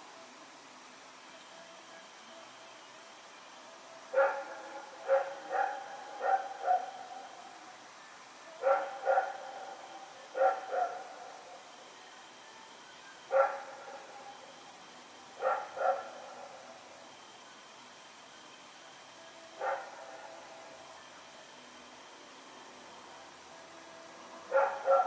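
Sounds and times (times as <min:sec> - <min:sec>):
dog barking: 0:04.1 - 0:07.2, 0:08.6 - 0:09.5, 0:10.3 - 0:11.1, 0:13.3 - 0:13.8, 0:15.4 - 0:16.2, 0:19.6 - 0:19.9, 0:24.5 - 0:25.0.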